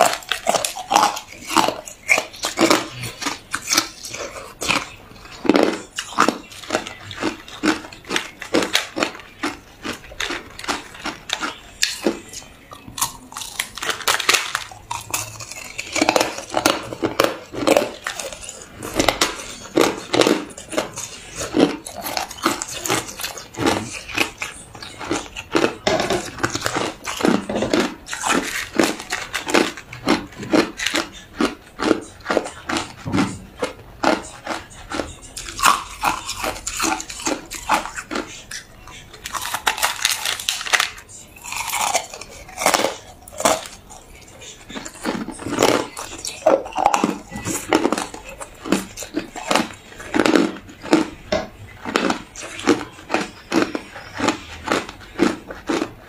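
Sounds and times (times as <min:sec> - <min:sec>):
crunching ice in mouth: 0:00.0 - 0:56.0.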